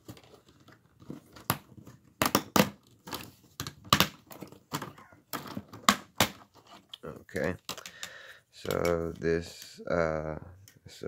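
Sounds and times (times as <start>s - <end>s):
plastic tabs snapping: 7.6s - 9.2s.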